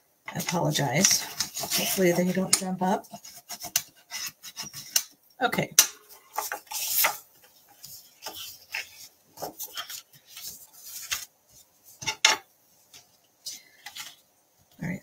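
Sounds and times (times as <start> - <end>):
paper rustling and scraping: 0.3 - 5.1, 6.2 - 13.1.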